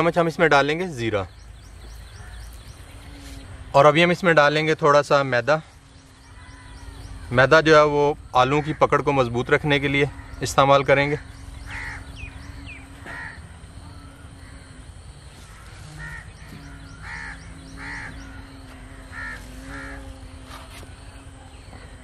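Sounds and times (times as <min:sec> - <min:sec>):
crows cawing: 0:06.2 - 0:07.4, 0:08.3 - 0:20.2.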